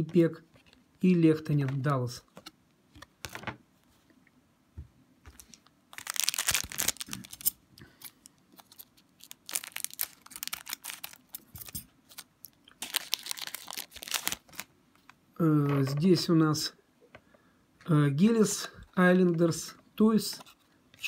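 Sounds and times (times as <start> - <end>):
wrapper crinkling and tearing: 5.4 - 15.2.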